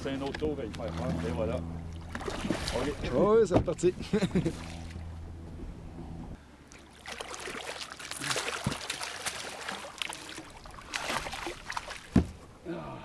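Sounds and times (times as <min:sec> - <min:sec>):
fish thrashing and splashing: 0:01.9 - 0:03.0, 0:06.7 - 0:12.4
dull knock: 0:12.1 - 0:12.4.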